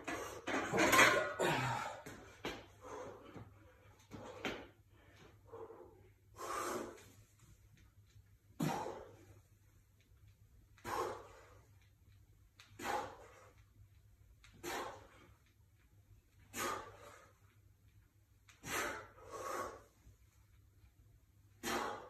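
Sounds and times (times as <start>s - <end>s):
person breathing hard: 1.4s - 7.1s, 10.8s - 11.8s, 18.5s - 20.0s, 21.6s - 22.0s
sharp exhales: 12.8s - 13.5s, 16.5s - 17.3s, 18.6s - 19.9s, 21.6s - 22.0s.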